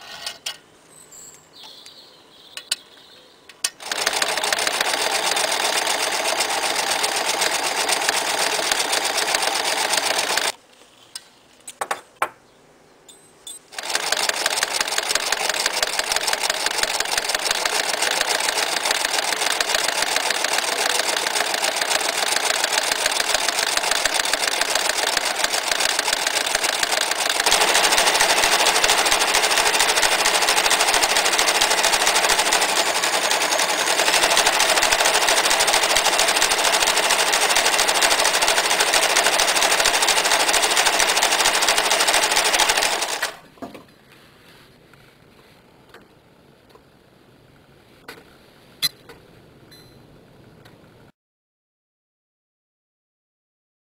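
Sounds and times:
sewing machine stitching: 3.8s - 10.5s, 13.7s - 43.4s.

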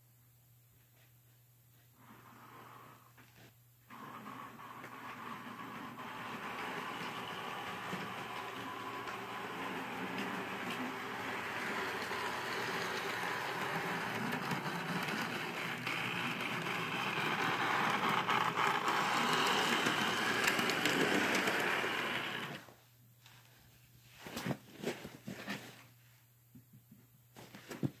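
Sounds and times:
model train motor whir: 3.9s - 22.6s.

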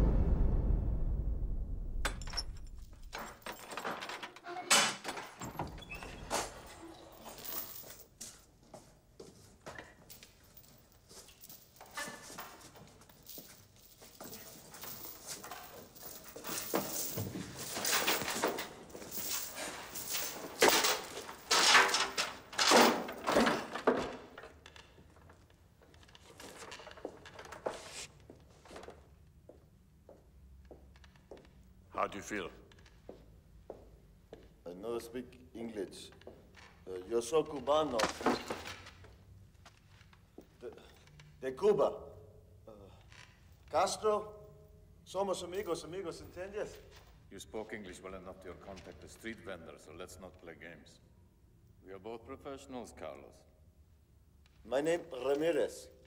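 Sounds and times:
deep boom: 0.0s - 3.2s.

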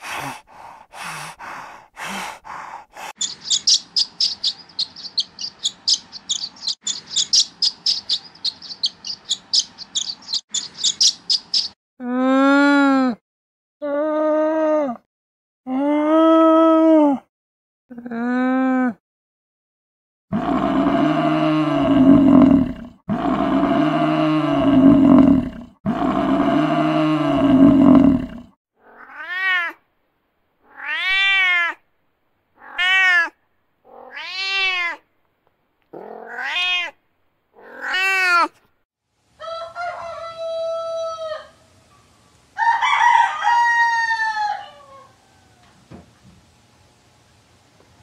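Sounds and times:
cat meowing: 28.8s - 29.8s, 30.7s - 31.8s, 32.6s - 35.0s, 36.0s - 37.0s, 37.6s - 38.6s
rooster crowing: 39.4s - 41.7s, 42.6s - 46.0s.

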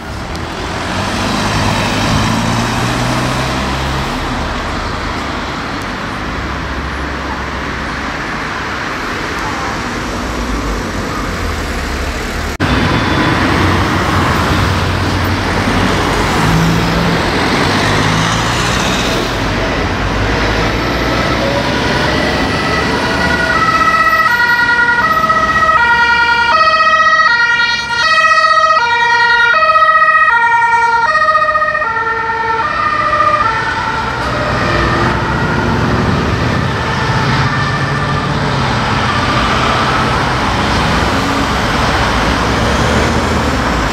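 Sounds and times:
traffic and tyres on road: 0.0s - 43.9s
two-tone siren: 21.2s - 40.2s.

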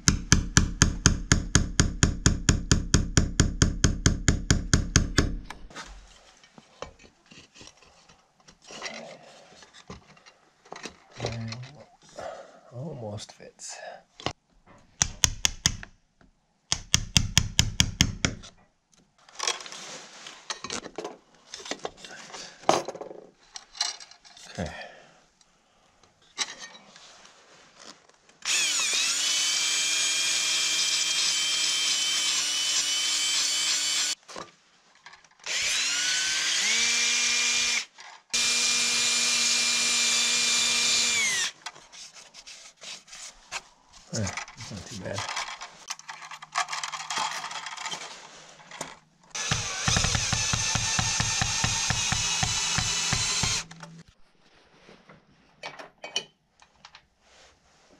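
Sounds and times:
drill spinning sanding disc: 28.4s - 34.2s, 35.5s - 41.6s, 49.4s - 53.8s
chisel struck into wood: 49.4s - 53.6s.

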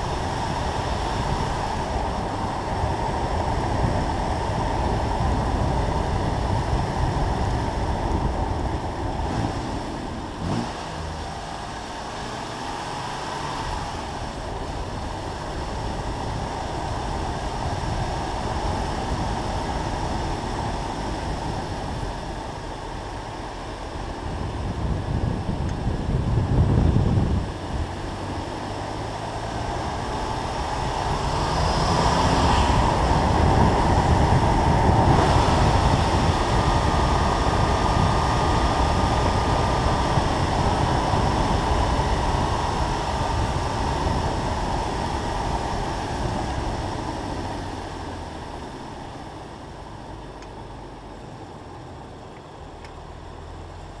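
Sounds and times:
car engine: 0.0s - 54.0s
wind and road noise: 0.0s - 54.0s.

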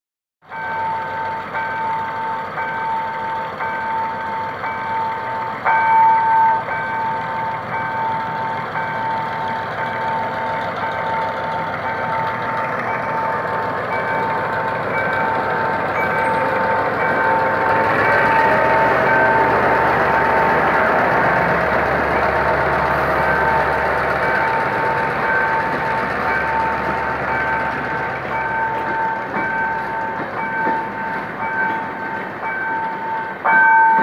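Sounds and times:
diesel locomotive engine: 0.4s - 34.0s
crossing alarm pulsing tone: 12.9s - 34.0s.

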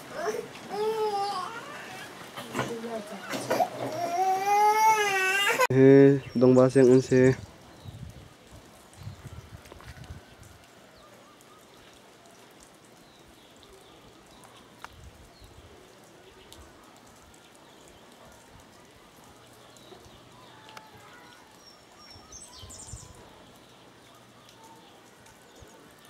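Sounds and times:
low steady hiss: 0.0s - 26.0s.

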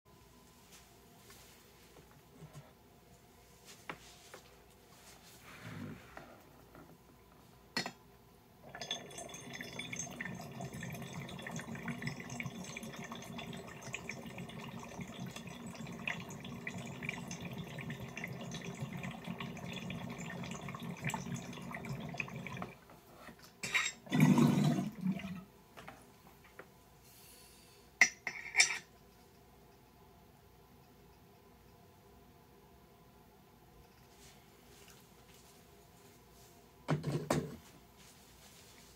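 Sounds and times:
water pipe bubbling: 8.6s - 22.8s, 24.1s - 25.4s.

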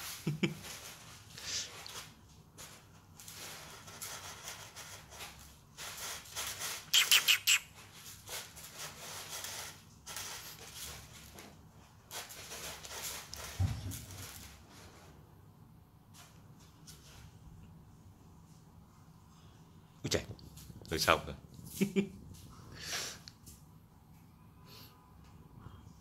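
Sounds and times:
cat scratching in litter: 0.0s - 15.2s.

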